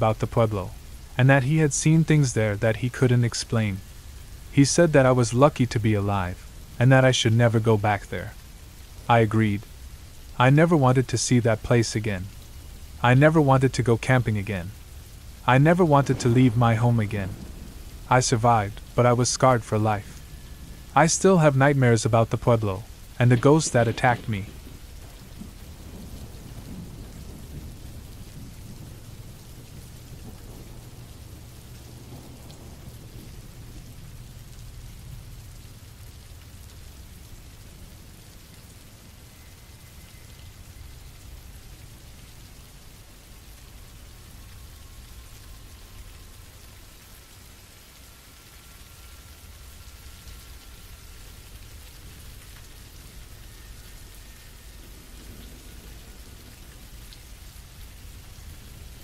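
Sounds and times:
rain hiss: 0:00.0 - 0:59.0
low rumble of thunder: 0:13.6 - 0:59.0.

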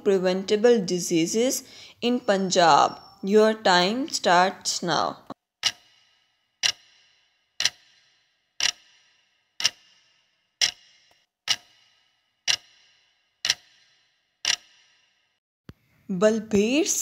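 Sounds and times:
clock ticking: 0:05.6 - 0:15.0.

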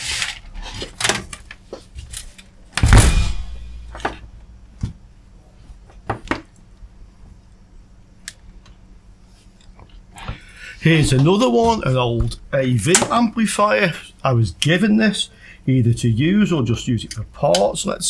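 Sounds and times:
heavy thud: 0:02.8 - 0:04.3.

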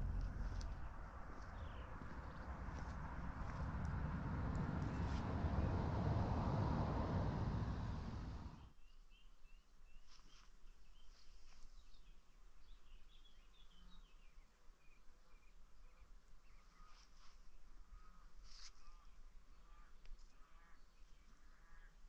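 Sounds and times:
rushing noise: 0:00.0 - 0:08.6
birds chirping: 0:00.0 - 0:08.7.

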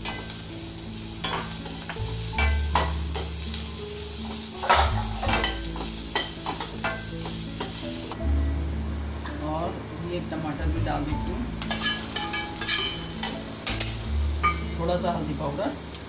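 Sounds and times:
vegetables sizzling in oil: 0:00.0 - 0:16.0.

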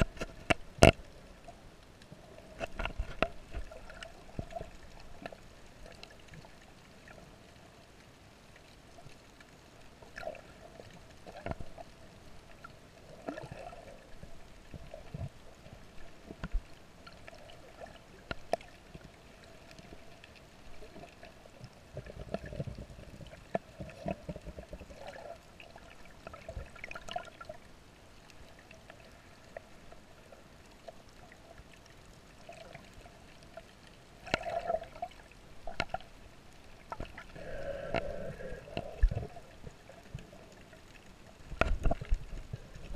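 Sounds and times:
muffled underwater gurgling: 0:37.0 - 0:40.7.

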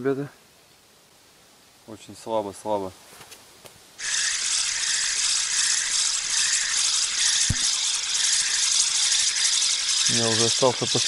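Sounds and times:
fishing reel gears whirring: 0:04.0 - 0:11.0
dull knock: 0:07.5 - 0:07.7.

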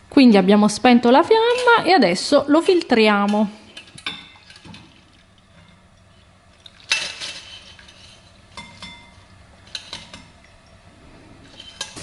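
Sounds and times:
metal pot and sieve clinking: 0:01.3 - 0:10.6, 0:11.4 - 0:12.0.

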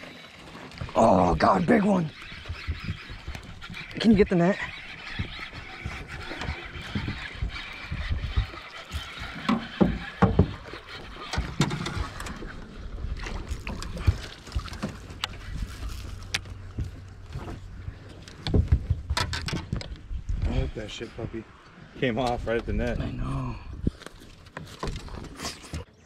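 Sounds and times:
fishing reel being cranked: 0:00.0 - 0:12.7.

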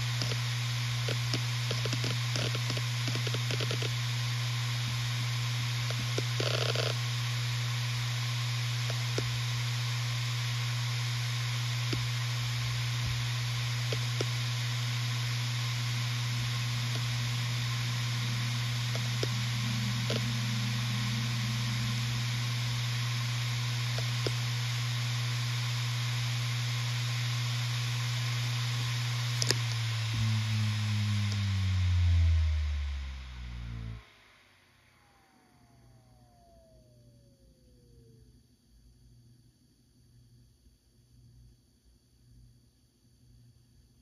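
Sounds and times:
hard drive humming: 0:00.0 - 0:38.2
faint hiss: 0:11.9 - 0:36.7.

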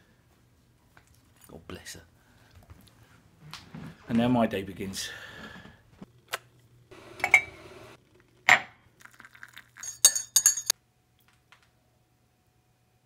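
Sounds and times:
spoon clinking in ceramic mug: 0:07.2 - 0:07.5, 0:09.3 - 0:10.7.

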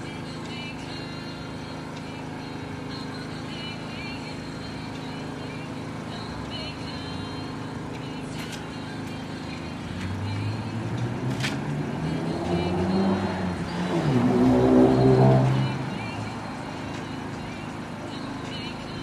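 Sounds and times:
urban hum: 0:00.0 - 0:19.0
vehicle engine approaching: 0:08.8 - 0:18.1.

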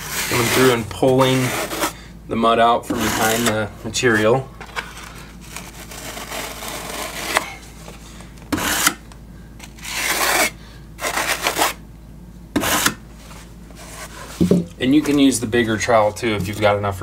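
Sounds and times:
trowel scraping mortar: 0:00.0 - 0:02.0, 0:02.8 - 0:04.4, 0:05.5 - 0:07.6, 0:08.5 - 0:09.0, 0:09.6 - 0:11.8, 0:12.6 - 0:13.0.

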